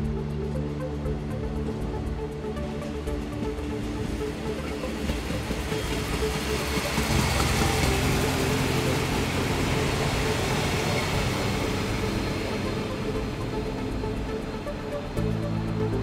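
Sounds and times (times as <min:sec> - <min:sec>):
train rumble and wheel hiss: 0:00.0 - 0:16.0.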